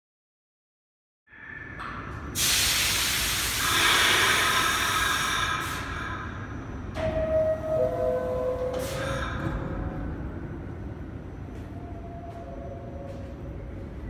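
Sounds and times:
subway car air release hiss: 2.3s - 6.5s, 7.1s - 9.5s.

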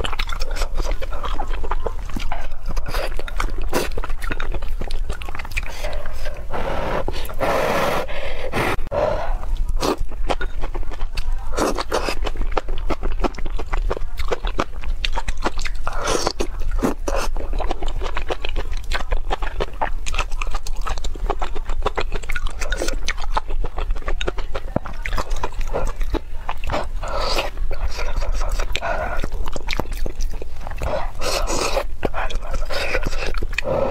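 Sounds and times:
wet chewing: 0.0s - 33.9s
slurping noodles: 5.6s - 10.0s.

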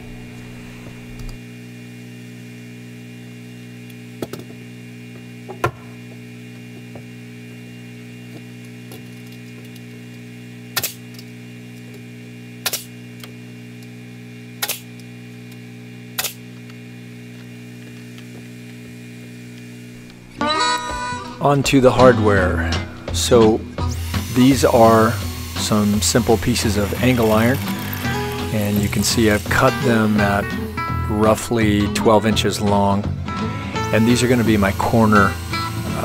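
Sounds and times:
steady hum: 0.0s - 6.5s, 15.2s - 36.0s
nail gun shots: 10.8s - 11.0s, 12.6s - 12.9s, 16.2s - 16.4s.

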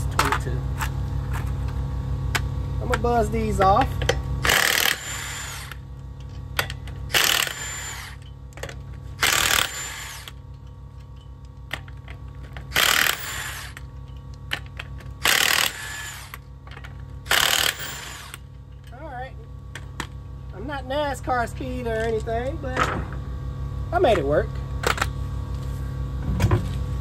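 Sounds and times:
impact wrench hammering: 3.6s - 5.8s, 6.6s - 10.4s, 12.8s - 13.8s, 15.2s - 16.4s, 17.3s - 18.4s.

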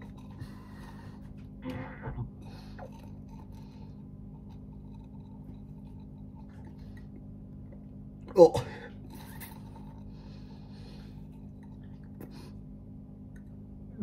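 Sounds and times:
low room hum: 0.0s - 14.0s
slurping through a straw: 2.4s - 7.2s, 9.0s - 10.5s.

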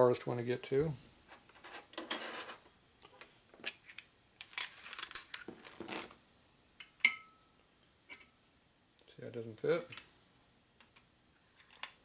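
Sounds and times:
metal rods clinking and rattling: 4.4s - 5.6s.

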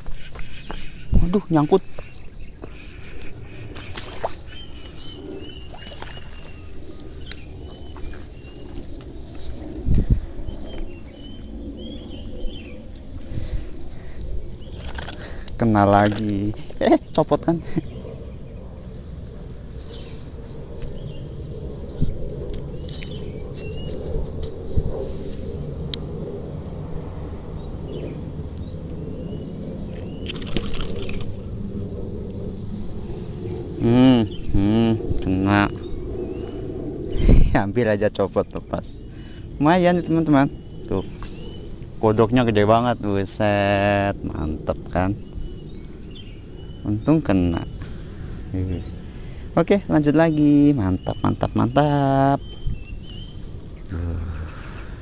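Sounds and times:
bird chirping: 0.0s - 9.5s, 10.4s - 13.1s, 19.8s - 24.2s, 27.6s - 31.4s, 44.4s - 49.3s, 49.9s - 55.0s
steady low rumble: 0.0s - 55.0s.

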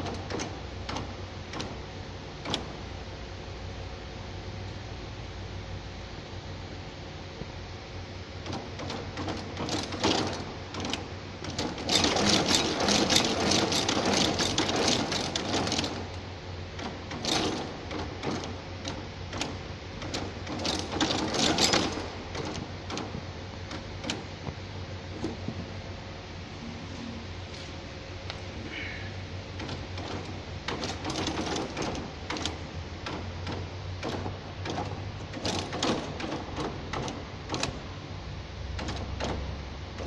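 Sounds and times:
machine mechanism clattering: 0.0s - 1.8s, 2.4s - 2.8s, 8.4s - 16.2s, 16.8s - 24.3s, 25.1s - 25.6s, 29.6s - 37.9s, 38.7s - 40.0s
steady machine hum: 0.0s - 40.0s.

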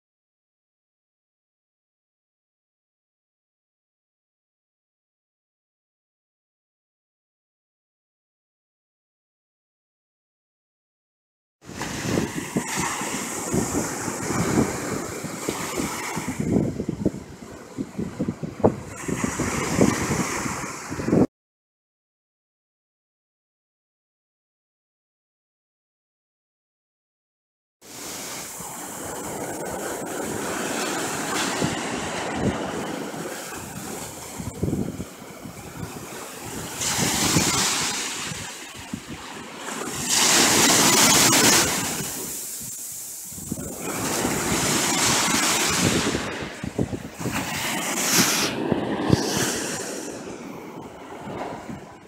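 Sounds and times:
ocean surf washing: 11.6s - 21.3s, 27.8s - 52.0s
wind gusting on microphone: 11.6s - 21.3s, 27.8s - 52.0s.

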